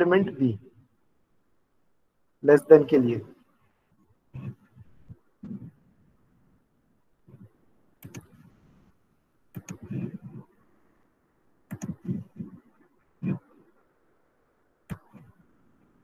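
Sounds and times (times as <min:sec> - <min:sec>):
computer mouse clicking: 0:07.3 - 0:08.5, 0:09.5 - 0:10.5, 0:11.7 - 0:12.6, 0:14.9 - 0:15.4.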